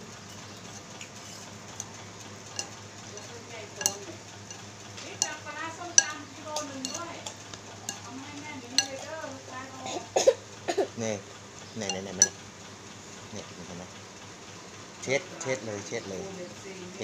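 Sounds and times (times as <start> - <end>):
stirring noodles in soup: 0.2 - 9.2, 11.8 - 12.4
utensils clinking on bowl: 0.2 - 10.0, 11.8 - 12.4.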